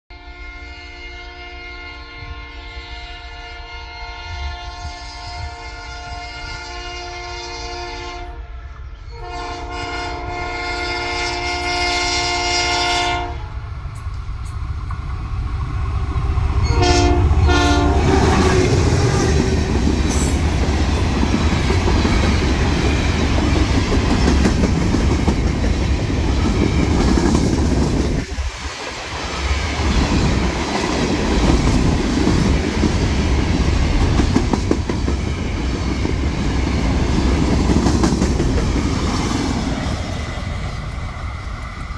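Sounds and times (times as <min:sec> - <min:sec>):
locomotive horn blasts: 0:00.1 - 0:08.5, 0:09.1 - 0:13.6, 0:16.6 - 0:18.5
train passing rumble: 0:00.1 - 0:41.9.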